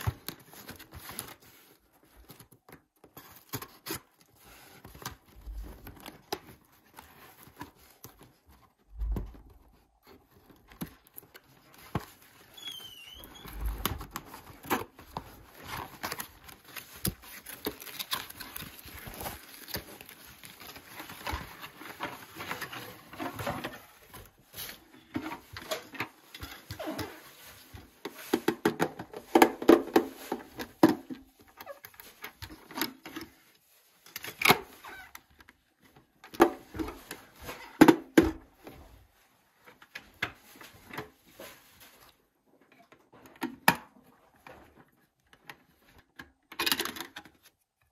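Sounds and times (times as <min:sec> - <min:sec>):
cardboard packaging rustling: 0:00.0 - 0:42.5.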